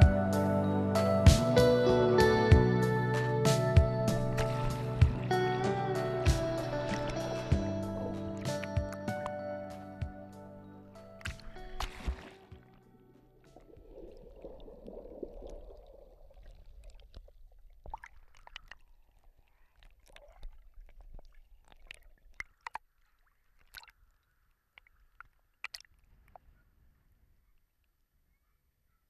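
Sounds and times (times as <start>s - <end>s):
muffled underwater wash: 2.8s - 9.3s, 11.2s - 23.6s
small waves splashing over case: 11.2s - 12.8s, 13.4s - 24.2s.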